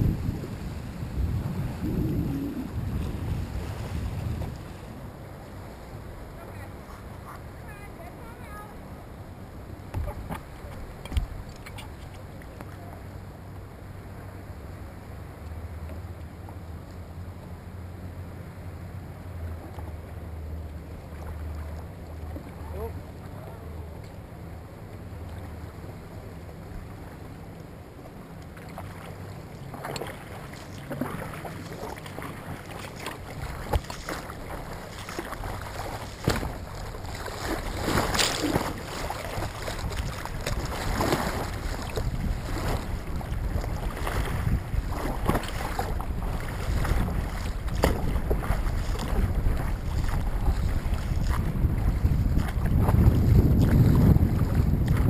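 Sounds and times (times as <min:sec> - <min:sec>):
water slapping against paddleboard: 0:00.0 - 0:05.0, 0:09.9 - 0:12.9, 0:28.4 - 0:55.0
wind rumble on microphone: 0:00.0 - 0:08.7, 0:28.6 - 0:55.0
sharp splashes: 0:28.6 - 0:55.0.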